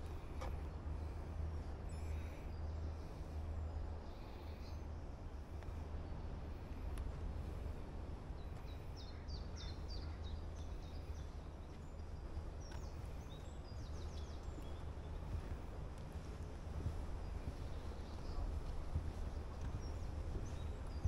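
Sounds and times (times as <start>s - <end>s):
steady low rumble: 0.0s - 21.0s
songbird singing: 8.4s - 21.0s.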